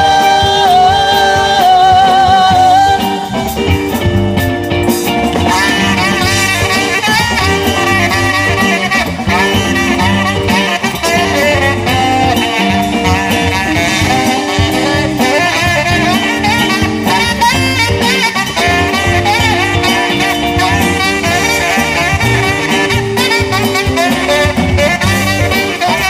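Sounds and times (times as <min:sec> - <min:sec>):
live band playing: 0:00.0 - 0:26.0
saxophone solo: 0:00.0 - 0:26.0.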